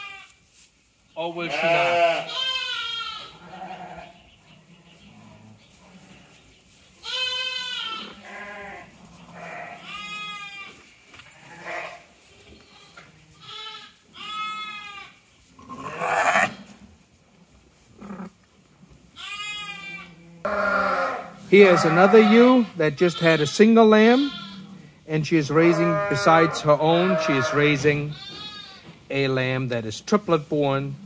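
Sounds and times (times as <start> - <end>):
lambs bleating: 0.0 - 0.4, 1.3 - 4.2, 7.0 - 16.8, 19.1 - 24.8, 25.5 - 29.0
rustling noise: 0.0 - 1.2, 3.1 - 31.0.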